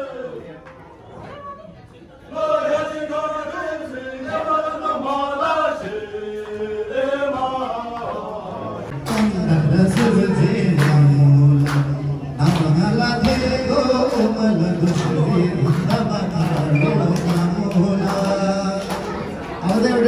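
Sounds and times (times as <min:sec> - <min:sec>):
voices chanting in unison: 0:02.3 - 0:11.1.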